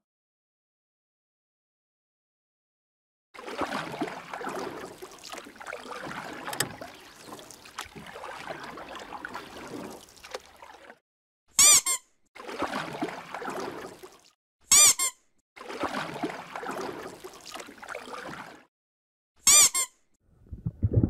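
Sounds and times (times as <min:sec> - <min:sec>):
soapy water sloshing: 0:03.4 - 0:11.0, 0:12.4 - 0:14.4, 0:15.6 - 0:18.7
rubber duck squeak: 0:11.6 - 0:12.1, 0:14.7 - 0:15.2, 0:19.4 - 0:20.0.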